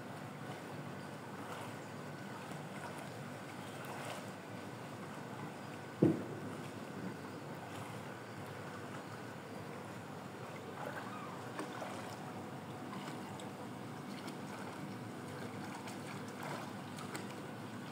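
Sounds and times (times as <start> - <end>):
pool water sloshing from swimmer: 0.0 - 17.9
steady outdoor hiss: 0.0 - 17.9.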